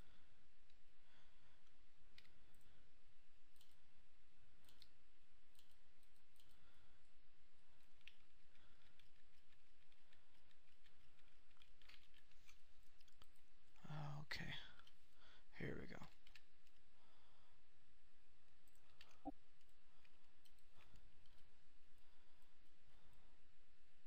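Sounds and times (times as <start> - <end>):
mouse and keyboard clicks: 4.6 - 6.6, 7.8 - 13.4.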